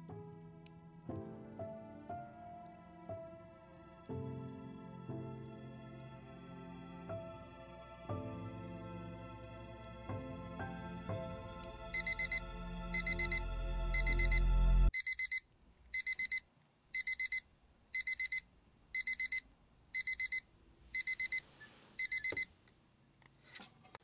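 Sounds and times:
soft music: 0.0 - 14.9
alarm clock beeping: 11.9 - 14.4, 15.0 - 15.4, 16.0 - 16.4, 17.0 - 17.4, 18.0 - 18.4, 19.0 - 19.4, 20.0 - 20.4, 21.0 - 21.4, 22.0 - 22.5.

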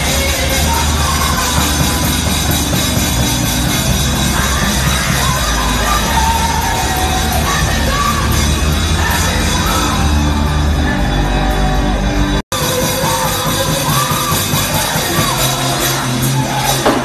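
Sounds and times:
band with guitar and keyboard: 0.0 - 17.0
woman singing into a microphone: 4.2 - 10.3.

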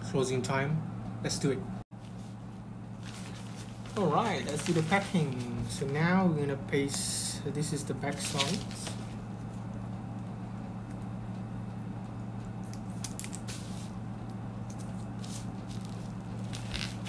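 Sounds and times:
steady low hum: 0.0 - 17.0
label backing peeling crackles: 3.0 - 6.0, 8.1 - 17.0.

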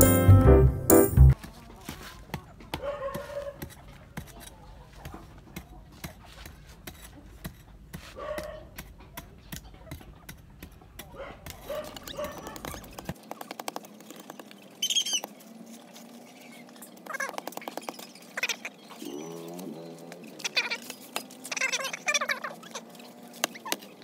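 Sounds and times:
metal trowel digging soil: 15.6 - 24.0.

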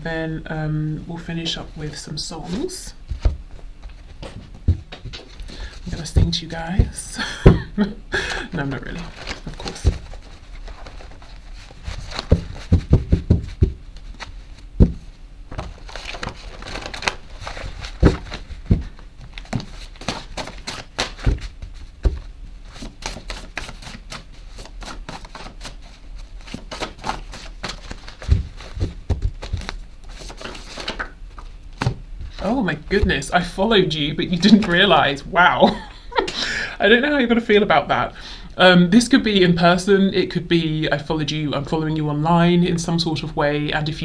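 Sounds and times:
cards being shuffled: 8.9 - 35.0
cards knocking on table: 12.2 - 13.8.

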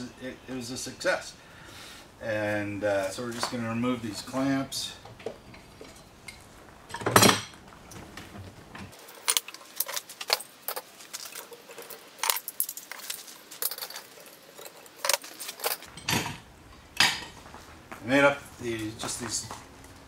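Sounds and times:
metal clamps clinking: 9.0 - 16.4.

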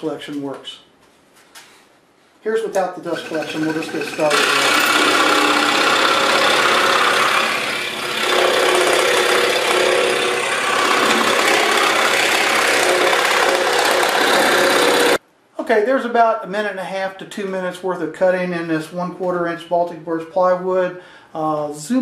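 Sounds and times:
scroll saw cutting wood: 3.1 - 15.2.

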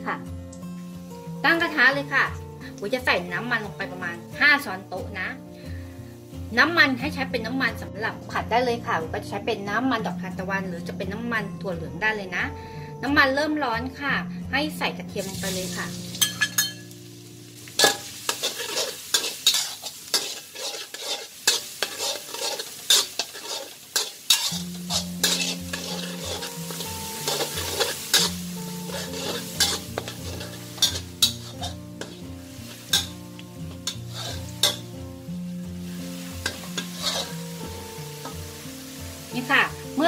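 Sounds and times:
soft background music: 0.0 - 40.0
garlic sizzling in oil: 0.2 - 8.9, 14.7 - 40.0
metal spatula scraping wok: 15.3 - 16.9, 17.7 - 39.2.

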